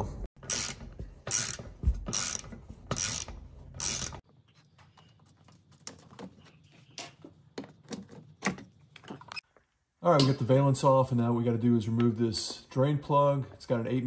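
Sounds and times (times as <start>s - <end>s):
ratchet wrench clicking: 0.5s - 2.4s, 3.0s - 4.2s.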